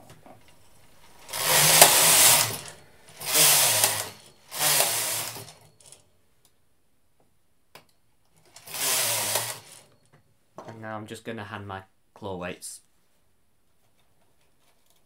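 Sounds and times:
knitting machine carriage rasping: 1.0 - 6.0, 8.4 - 10.0.

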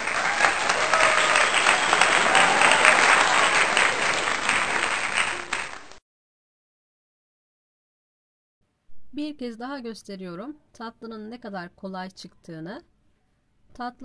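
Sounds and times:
crowd applause: 0.0 - 6.0.

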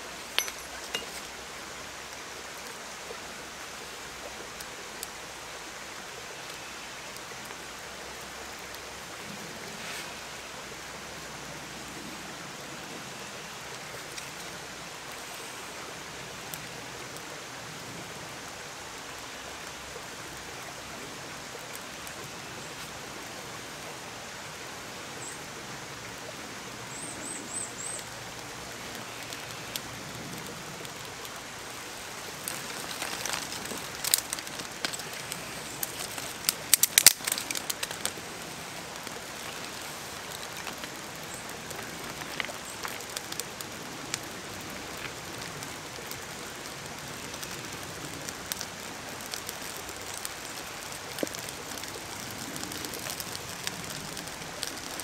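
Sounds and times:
steady background hiss: 0.0 - 55.0
fire crackling and snapping: 13.6 - 20.8, 21.4 - 23.8, 27.9 - 55.0.

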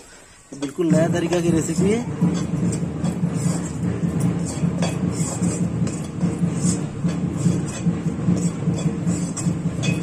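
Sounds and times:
steady low rumble: 1.0 - 10.0
ladle scraping a metal pan: 2.3 - 10.0.

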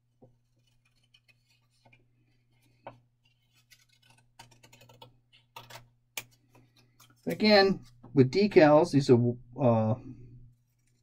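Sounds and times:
paper rustling: 0.2 - 8.1
scissors snipping paper: 3.3 - 6.4.

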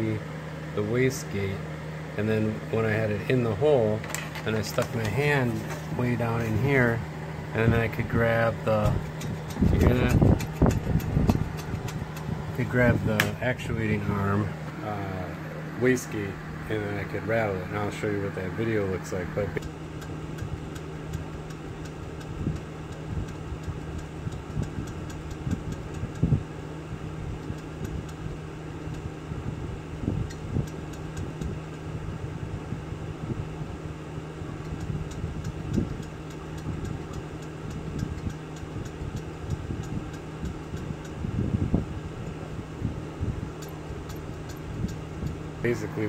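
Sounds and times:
steady low hum: 0.0 - 46.0
turbo wastegate flapper clunking: 3.7 - 14.8, 18.7 - 26.5, 34.4 - 46.0.

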